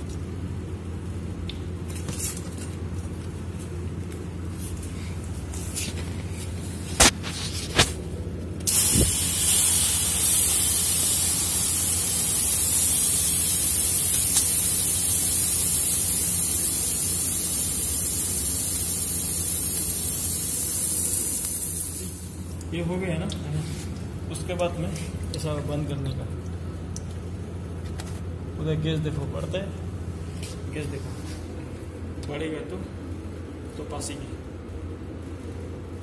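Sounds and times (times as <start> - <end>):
constant low hum: 0.0 - 36.0
water jetting with loud hiss: 8.7 - 22.7.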